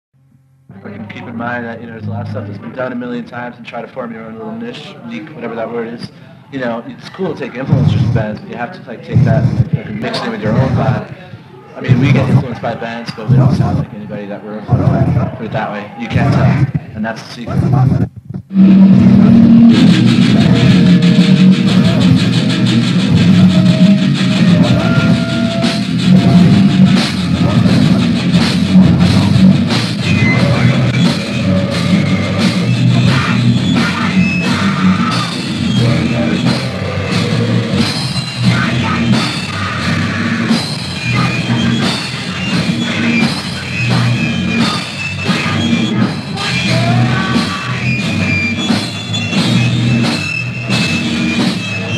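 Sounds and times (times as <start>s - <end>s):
punk band playing: 9.2s - 11.2s, 11.8s - 13.9s, 18.4s - 51.9s.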